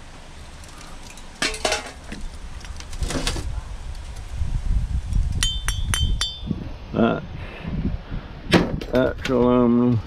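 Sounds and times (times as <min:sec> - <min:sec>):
metal tools clinking in aluminum pan: 0:01.1 - 0:02.0.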